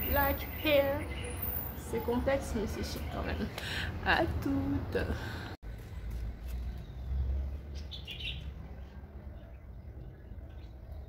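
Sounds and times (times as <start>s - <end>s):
bird chirping: 0.0s - 3.3s, 6.5s - 11.0s.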